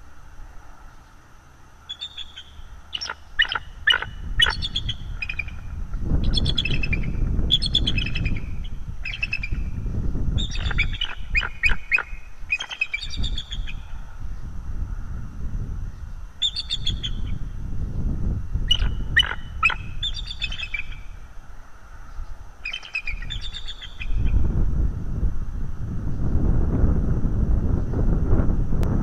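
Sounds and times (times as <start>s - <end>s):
eagles chattering calls: 1.9s - 5.6s, 10.4s - 13.8s, 18.7s - 21.0s, 22.6s - 24.1s.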